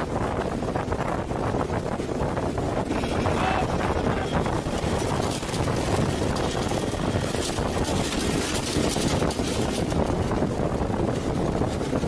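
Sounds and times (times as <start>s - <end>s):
aircraft engine noise: 0.0s - 12.0s
wind rushing: 0.0s - 12.0s.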